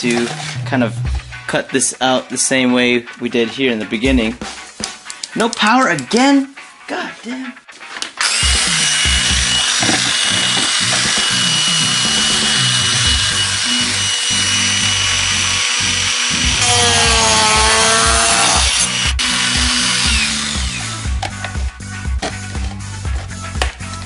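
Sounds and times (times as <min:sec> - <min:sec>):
rotary tool cutting plastic sheet: 0:08.2 - 0:21.1.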